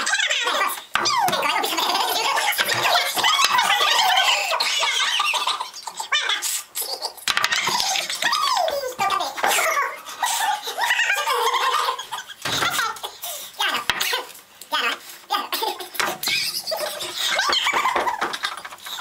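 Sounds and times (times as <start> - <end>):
speech: 0.0 - 4.8, 8.3 - 10.0, 13.6 - 15.7
people laughing: 1.1 - 9.0, 10.0 - 13.4, 15.5 - 19.0.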